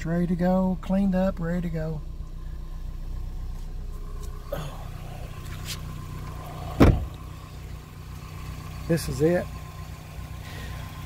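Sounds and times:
car engine idling: 0:00.0 - 0:11.0
car door shutting: 0:03.5 - 0:07.3.

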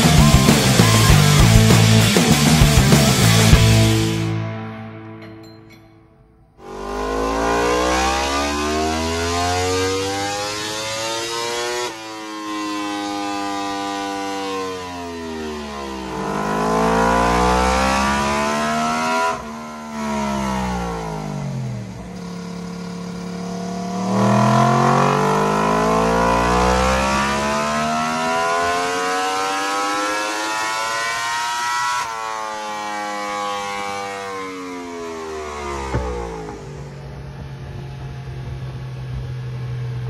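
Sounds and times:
motorcycle engine revving: 0:00.0 - 0:04.6, 0:06.6 - 0:40.0.

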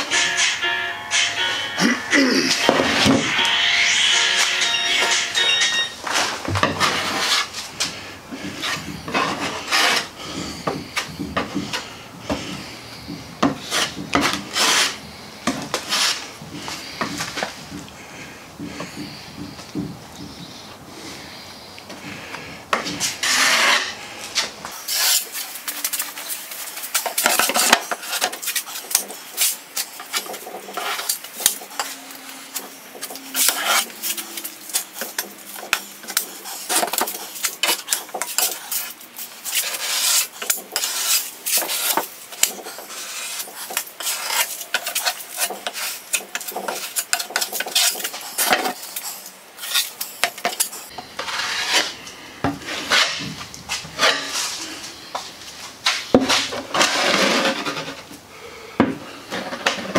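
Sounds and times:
plastic spreader scraping epoxy: 0:22.9 - 0:52.0, 0:56.3 - 0:58.1.

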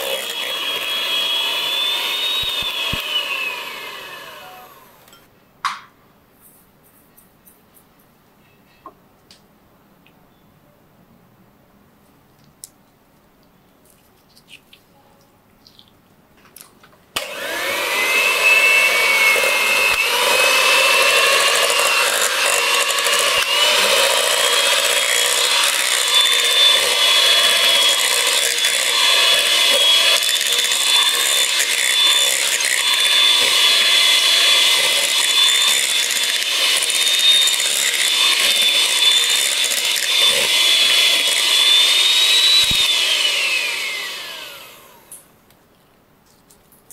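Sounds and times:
electric hand mixer running: 0:00.0 - 0:05.2, 0:17.2 - 0:45.2.

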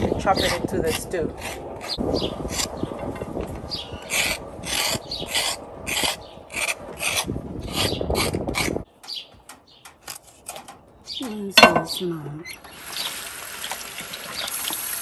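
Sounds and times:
knife scraping gourd skin: 0:00.0 - 0:02.8, 0:04.0 - 0:08.8.

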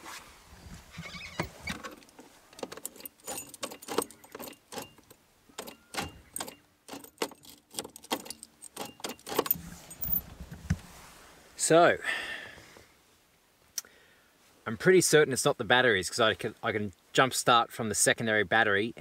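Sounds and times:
keys jangling: 0:02.6 - 0:10.3.

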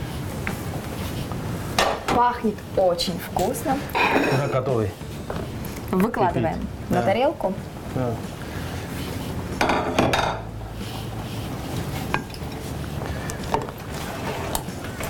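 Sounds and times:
cutlery and dishes clinking: 0:09.6 - 0:10.5.

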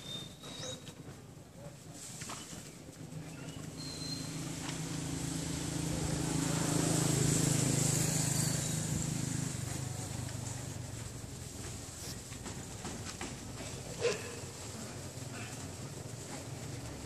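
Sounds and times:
small boat engine passing: 0:03.6 - 0:17.0.

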